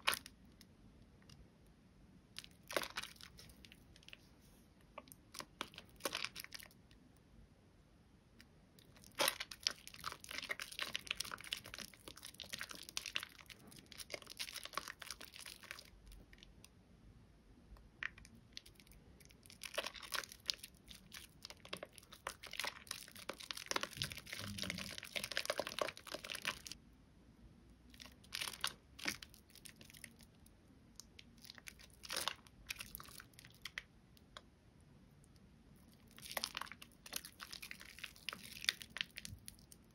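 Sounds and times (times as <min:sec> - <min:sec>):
wet soap lather squishing: 0:00.0 - 0:00.4, 0:02.4 - 0:06.8, 0:08.8 - 0:16.5, 0:18.0 - 0:26.8, 0:27.8 - 0:30.4, 0:31.0 - 0:33.9, 0:35.7 - 0:39.9.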